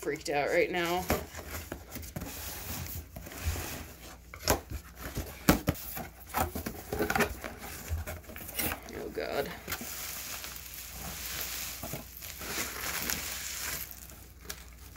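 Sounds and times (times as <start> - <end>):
packing material crinkling: 6.0 - 14.9.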